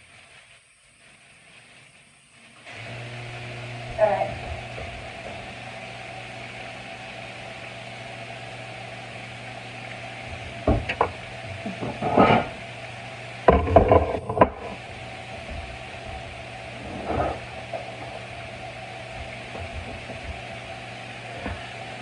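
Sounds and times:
kitchen appliance humming: 2.0 - 22.0
kitchenware knocking and clattering: 13.5 - 14.7.

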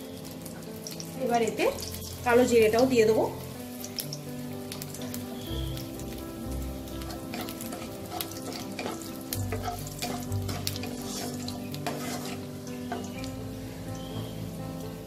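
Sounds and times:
spices sizzling in hot oil: 0.0 - 15.0
spatula scraping and tapping pan: 7.0 - 13.2.

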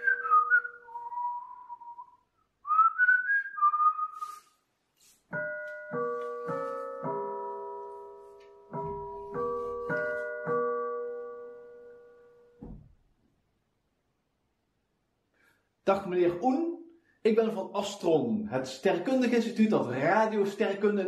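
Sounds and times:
man whistling: 0.0 - 4.6
piano chords: 5.3 - 12.8.

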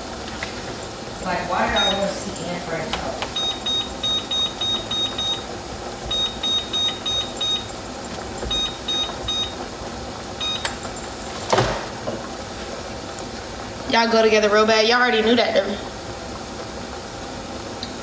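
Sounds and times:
rapid high electronic beeps: 3.4 - 5.4, 6.1 - 7.7.

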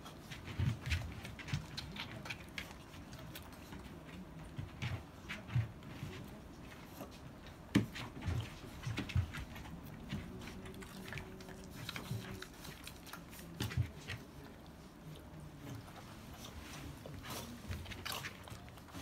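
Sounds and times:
paws thumping and shuffling: 0.0 - 19.0.

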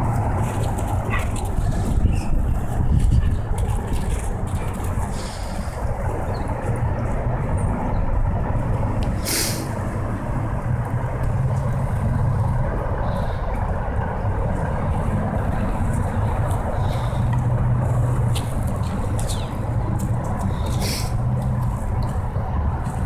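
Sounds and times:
heavy road traffic rumble: 0.0 - 23.0
air brake hiss: 9.2 - 9.7, 20.8 - 21.2.

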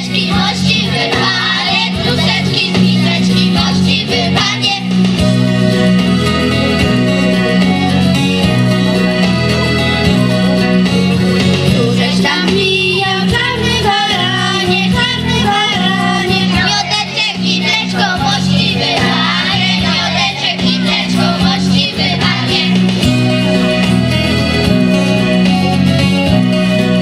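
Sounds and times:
children singing: 0.0 - 5.0, 13.3 - 23.0
instrumental accompaniment: 0.0 - 27.0.

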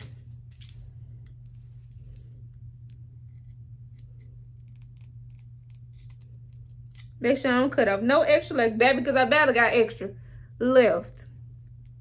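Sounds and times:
steady low hum: 0.0 - 12.0
scissors snipping: 3.8 - 7.1.

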